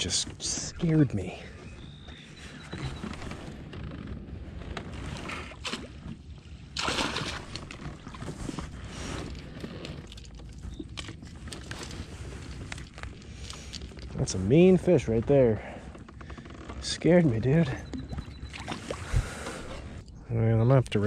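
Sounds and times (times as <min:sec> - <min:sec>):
water splashing and sloshing: 0:00.0 - 0:20.0
loud splash: 0:06.8 - 0:07.6.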